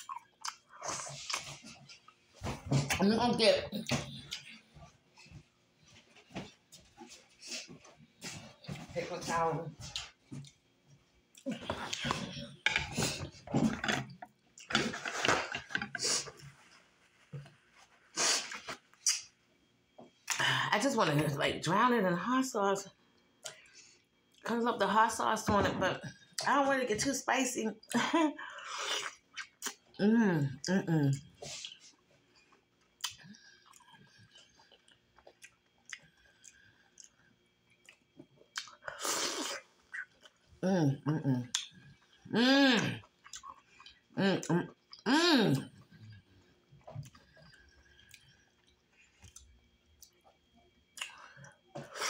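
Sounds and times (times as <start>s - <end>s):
person chewing wetly: 0.0s - 2.3s, 29.0s - 29.9s, 31.5s - 40.6s, 41.5s - 51.8s.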